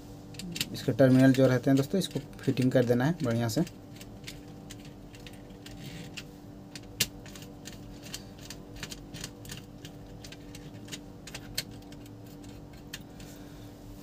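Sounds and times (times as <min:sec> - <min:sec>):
faint steady hum: 0:00.0 - 0:14.0
screwdriver clicking on screws: 0:00.4 - 0:13.2.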